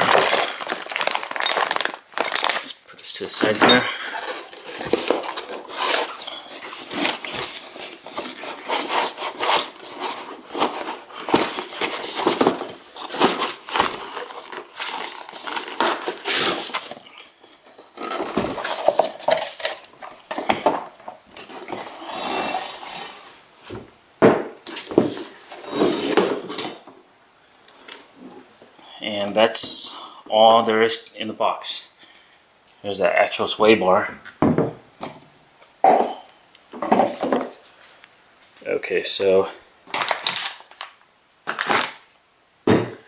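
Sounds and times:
cardboard scraping and rubbing: 4.1s - 16.8s, 24.6s - 26.8s.

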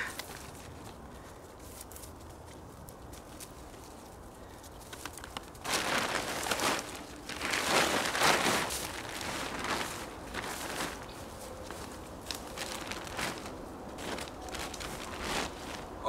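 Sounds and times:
leaves rustling underfoot: 0.0s - 16.0s
tarp dragged over dry leaves: 5.6s - 16.0s.

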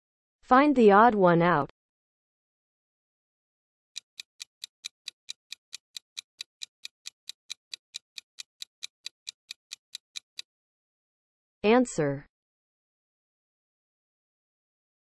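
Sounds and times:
clock ticking: 4.0s - 10.5s.

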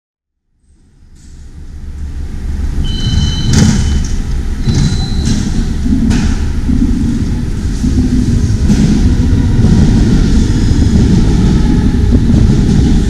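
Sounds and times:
low rumble: 0.7s - 13.0s
short electronic beeps: 2.8s - 5.4s.

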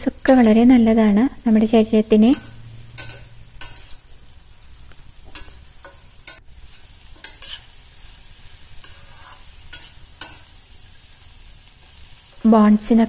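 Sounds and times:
frying sizzle: 0.0s - 13.0s
metal spatula scraping a pot: 2.3s - 4.0s, 5.3s - 7.8s, 8.6s - 10.5s.

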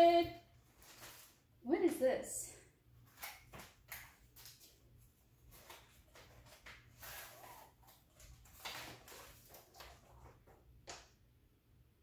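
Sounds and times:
cardboard box and paper rustling: 5.4s - 10.4s.

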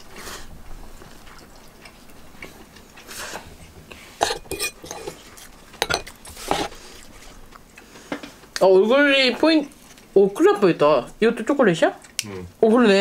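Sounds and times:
soft eating sounds: 0.0s - 13.0s
metal fork clinking on plate: 4.2s - 5.2s, 5.8s - 6.1s.

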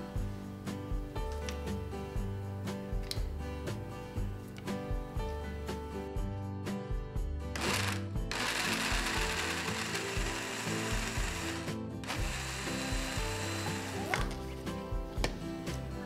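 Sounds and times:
blender running: 7.6s - 14.2s.

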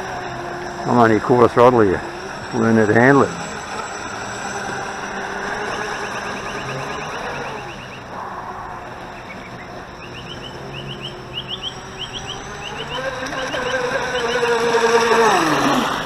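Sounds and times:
rc boat electric motor whining: 0.0s - 16.0s
high rising chirps: 3.4s - 15.2s.

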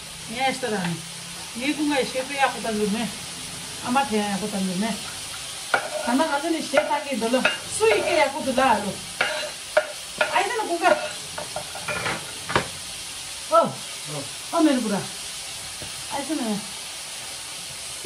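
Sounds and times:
food frying in a pan: 0.0s - 18.0s
metal utensil scraping pan: 5.0s - 12.7s.

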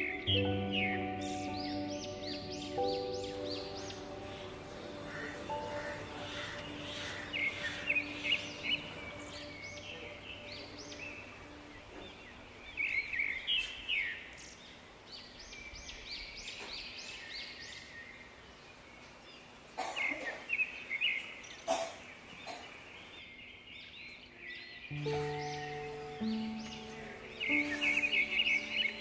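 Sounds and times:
music with steady tones: 0.0s - 12.7s, 24.9s - 29.0s
small birds chirping: 0.0s - 29.0s.

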